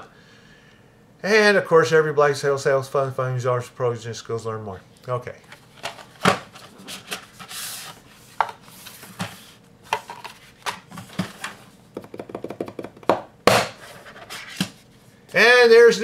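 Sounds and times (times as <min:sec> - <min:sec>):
cardboard box knocking on wood: 0:12.0 - 0:13.6.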